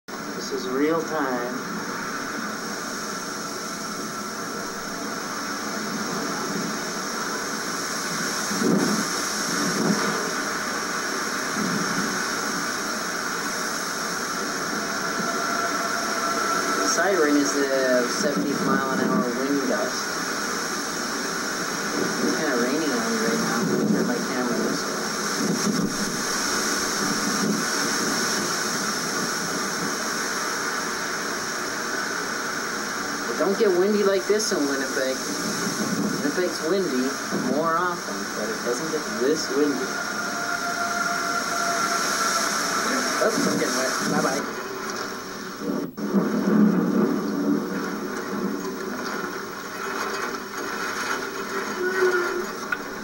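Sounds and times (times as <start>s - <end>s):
rain: 0.1s - 53.0s
wind howling and whistling: 0.1s - 53.0s
wind buffets on microphone: 1.6s - 19.3s, 20.0s - 33.6s, 35.2s - 44.5s.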